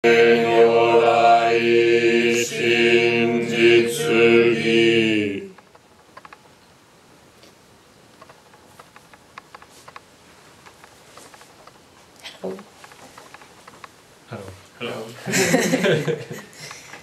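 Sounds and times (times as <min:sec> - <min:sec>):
chanting on one pitch: 0:00.0 - 0:05.6.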